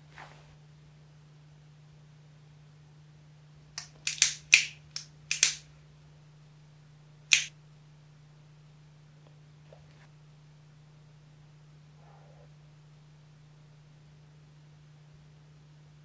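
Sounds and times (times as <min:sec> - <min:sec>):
cigarette lighter clicks: 0:03.8 - 0:05.6, 0:07.3 - 0:07.5.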